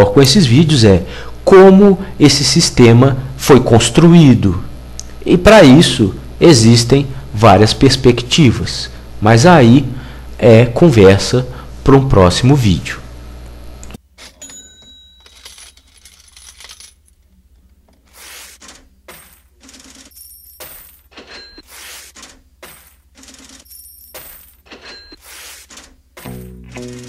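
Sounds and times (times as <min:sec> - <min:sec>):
sharp metallic clinks: 0:20.1 - 0:21.7, 0:23.7 - 0:25.2.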